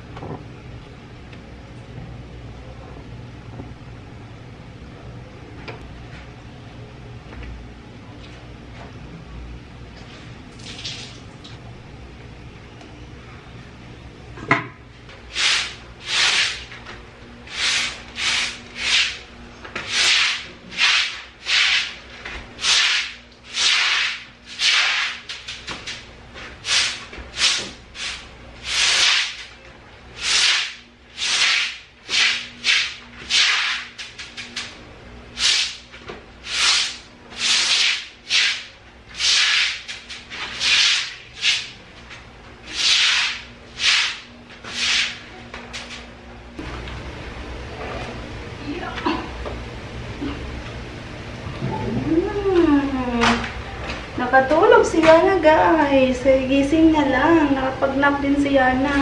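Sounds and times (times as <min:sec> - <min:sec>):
broom sweeping wet concrete: 0:15.3 - 0:16.8, 0:17.5 - 0:19.2, 0:19.8 - 0:29.5, 0:30.2 - 0:34.5, 0:35.4 - 0:35.8, 0:36.4 - 0:41.8, 0:42.6 - 0:46.0.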